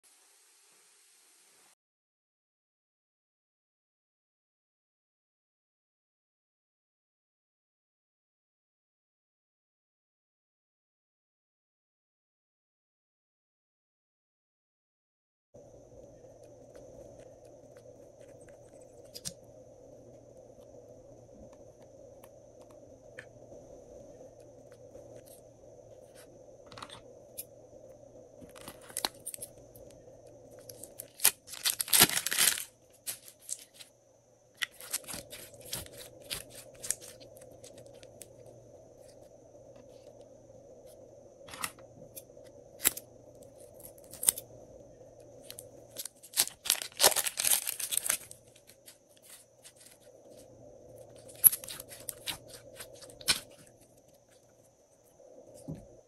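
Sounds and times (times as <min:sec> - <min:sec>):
faint steady hum: 0:15.6 - 0:56.0
crackly bursts: 0:28.5 - 0:33.9, 0:45.4 - 0:50.2
plastic bags crinkling: 0:30.7 - 0:33.8, 0:45.9 - 0:48.8.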